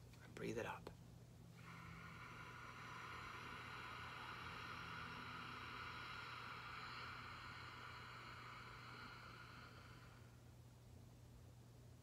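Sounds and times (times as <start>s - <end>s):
low steady hum: 0.0s - 12.0s
breath drawn through nose: 1.6s - 10.4s.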